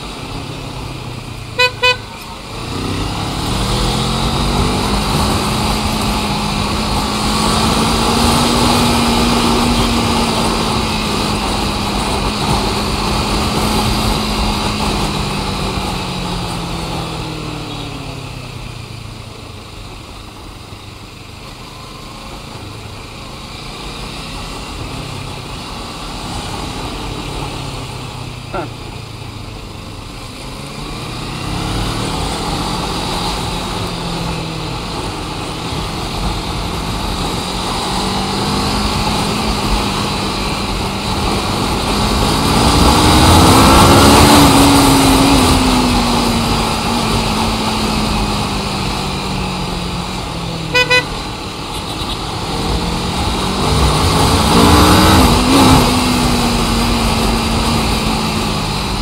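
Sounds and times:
vehicle engines passing: 0:00.0 - 0:59.0
vehicle horn toots: 0:01.5 - 0:02.4, 0:50.7 - 0:52.2.

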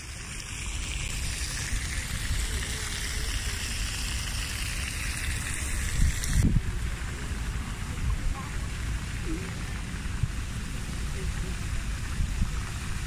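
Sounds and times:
fountain splashing into basin: 0:00.0 - 0:13.0
wind rumble on microphone: 0:05.3 - 0:13.0.

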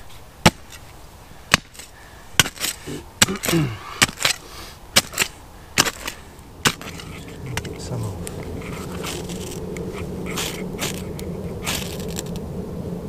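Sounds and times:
flint and steel striking: 0:00.4 - 0:00.9, 0:01.5 - 0:12.4.

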